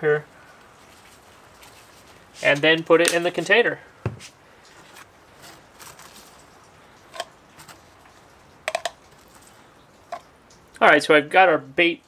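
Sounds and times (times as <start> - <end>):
kernels clicking against glass: 8.7 - 9.3.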